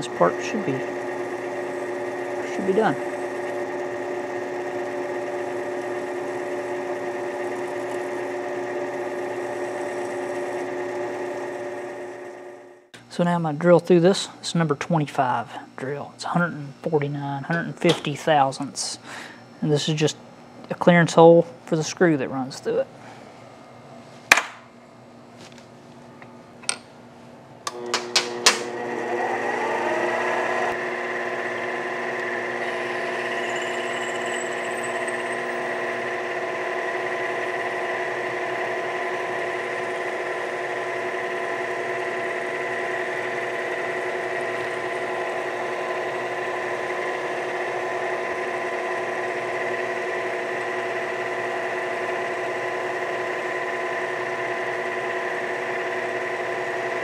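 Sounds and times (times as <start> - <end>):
drill boring through metal: 0.0 - 12.6, 27.7 - 57.0
lathe motor and gear whine: 0.0 - 20.2, 27.7 - 57.0.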